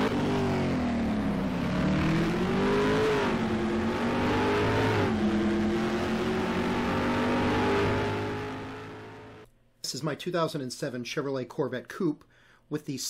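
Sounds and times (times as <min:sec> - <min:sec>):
car engine accelerating hard: 0:00.0 - 0:09.4.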